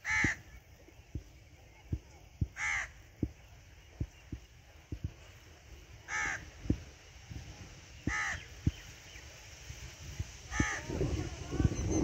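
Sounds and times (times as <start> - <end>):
crow cawing: 0.0 - 0.4, 2.6 - 3.0, 6.1 - 6.4, 8.1 - 8.4
soft low thumps: 0.2 - 5.3.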